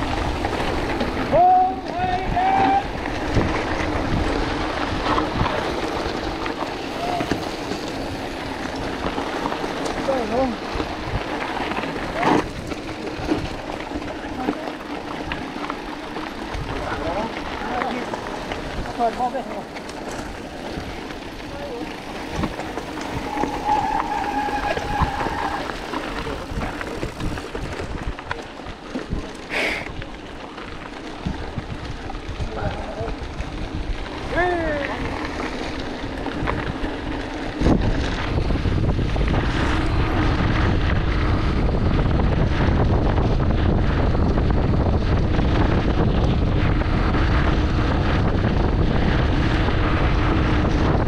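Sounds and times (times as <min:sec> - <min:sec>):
wind noise on microphone: 0:00.0 - 0:19.2, 0:20.0 - 0:51.0
bike tyres crunching on gravel: 0:00.0 - 0:51.0
steady squeal: 0:22.9 - 0:25.7.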